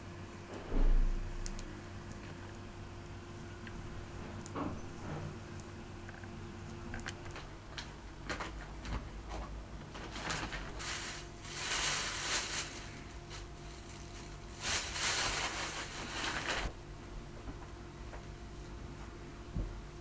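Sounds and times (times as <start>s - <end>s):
low steady hum: 0.0s - 20.0s
rustling: 9.9s - 16.8s.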